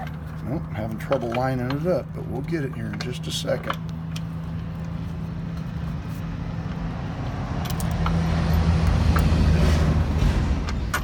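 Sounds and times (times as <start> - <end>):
truck engine drone passing by: 4.0 - 11.0.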